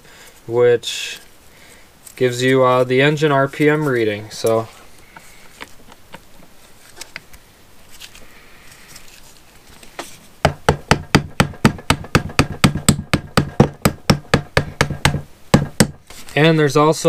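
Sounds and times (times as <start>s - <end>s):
rapid tapping on metal: 10.4s - 16.0s.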